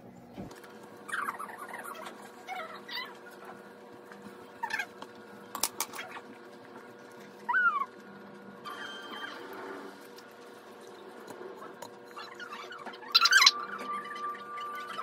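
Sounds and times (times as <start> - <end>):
squeaky animal calls: 1.1 - 3.2, 12.2 - 15.0.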